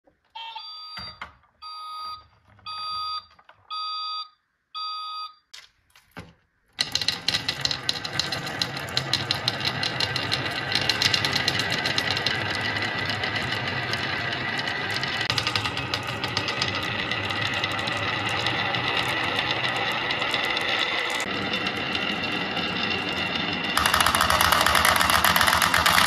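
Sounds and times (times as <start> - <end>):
electronic countdown beeps: 0.4 - 5.5
marbles clattering down wooden run: 6.8 - 26.0.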